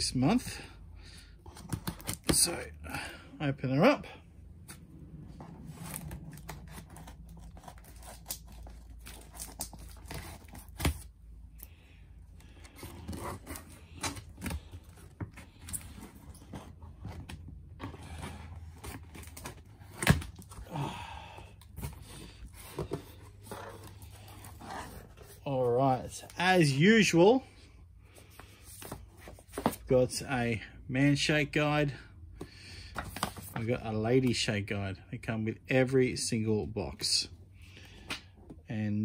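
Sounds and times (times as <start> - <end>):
cardboard scraping and rustling: 4.7 - 11.1, 12.6 - 20.6, 21.8 - 25.5.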